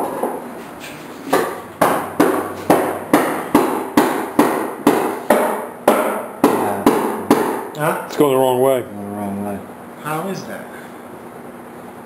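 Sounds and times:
hammer blows with ringing: 0:01.3 - 0:07.7.

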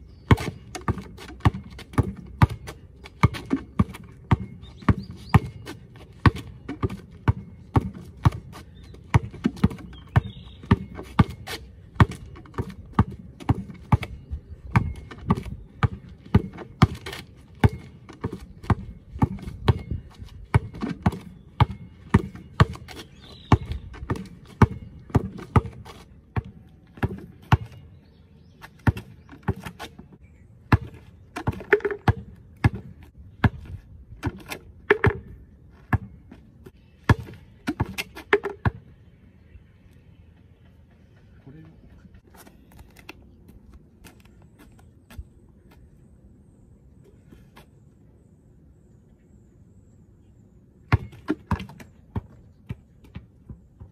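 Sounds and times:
basketball bouncing on asphalt: 0:00.0 - 0:39.2, 0:50.8 - 0:53.9.

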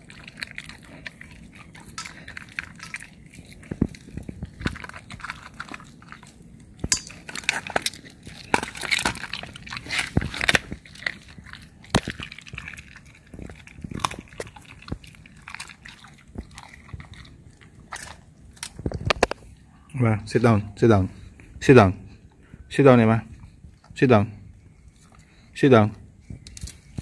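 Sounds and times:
dog chewing raw meat: 0:00.0 - 0:19.5.

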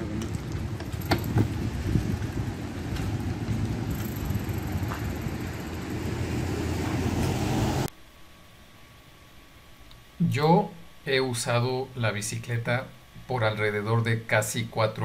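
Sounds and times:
city road traffic rumble: 0:00.0 - 0:07.9.

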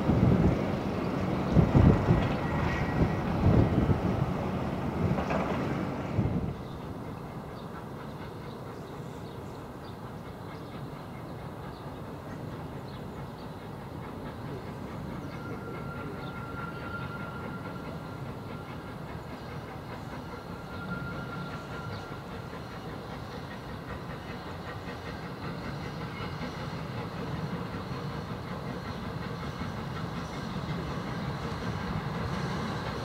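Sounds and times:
steam locomotive working: 0:00.0 - 0:33.0
train running on rails: 0:00.0 - 0:33.0.

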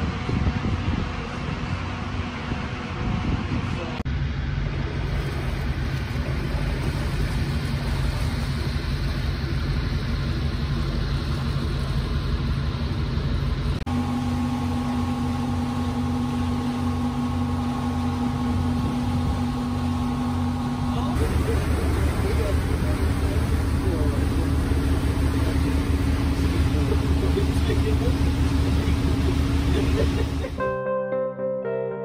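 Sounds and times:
engine hum with even tone: 0:00.0 - 0:30.6
ferry engine droning: 0:00.0 - 0:30.6
broad rush of noise: 0:17.4 - 0:30.6.

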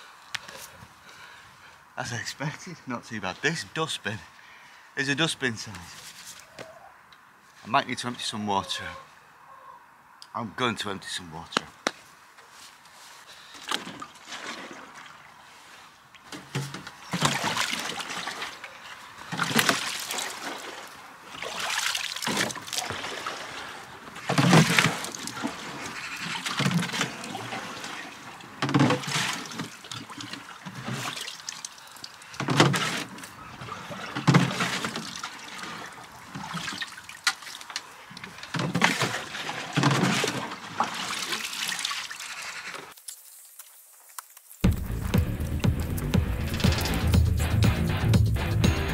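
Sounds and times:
water splashing and gurgling: 0:13.6 - 0:47.2.

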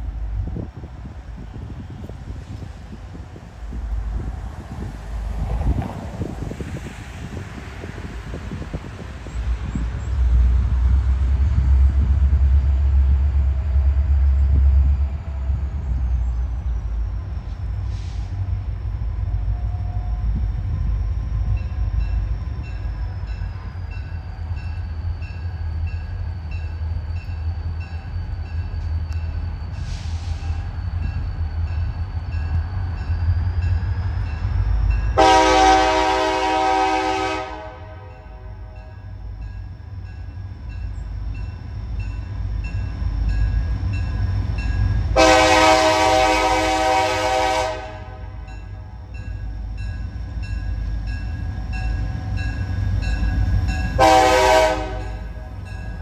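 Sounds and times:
low rumble of train: 0:00.0 - 0:56.0
locomotive horn blasts: 0:35.2 - 0:39.0, 0:45.2 - 0:48.6, 0:54.0 - 0:55.4.

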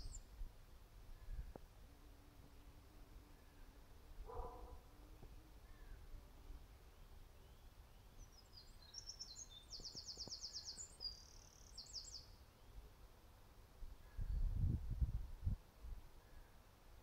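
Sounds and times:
songbird singing trill: 0:00.0 - 0:00.4, 0:02.5 - 0:12.9.

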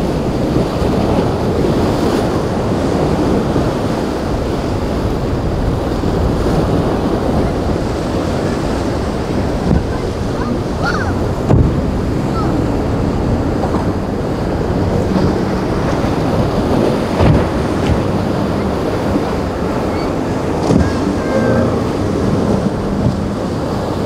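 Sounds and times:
outboard motors droning: 0:00.0 - 0:24.0
waves breaking: 0:00.0 - 0:24.0
wind buffeting microphone: 0:00.0 - 0:24.0
loud thumps: 0:11.4 - 0:11.8.

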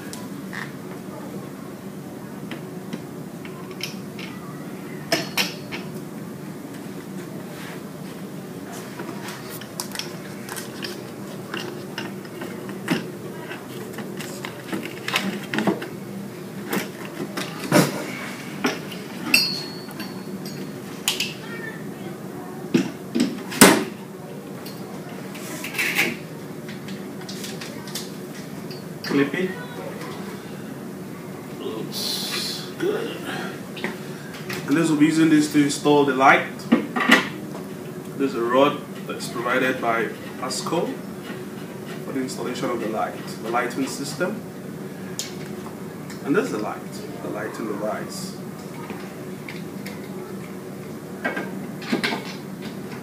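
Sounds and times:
steady low hum: 0:00.0 - 0:53.0
clicks and clinks of metal parts: 0:18.7 - 0:21.4.

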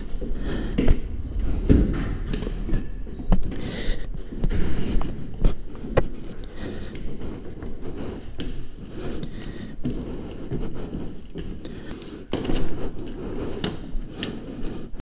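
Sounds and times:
microphone rubbing: 0:00.0 - 0:06.4
footsteps climbing stairs: 0:00.0 - 0:15.0.

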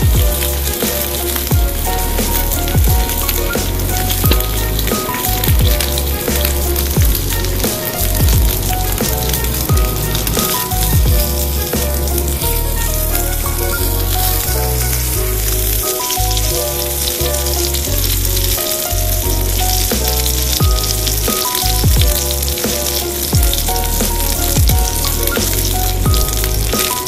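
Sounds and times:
background music with drum beat: 0:00.0 - 0:14.0, 0:19.8 - 0:27.0
pork sizzling in a skillet: 0:00.0 - 0:27.0.

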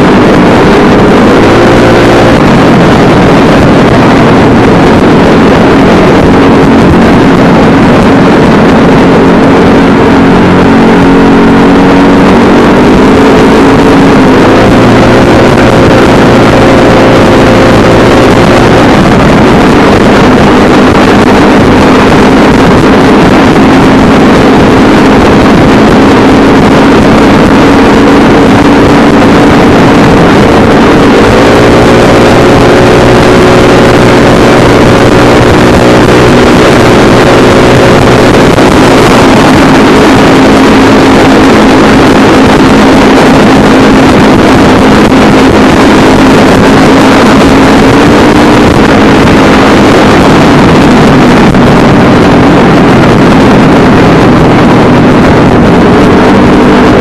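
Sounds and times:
wind rushing over microphone: 0:00.0 - 0:57.0.

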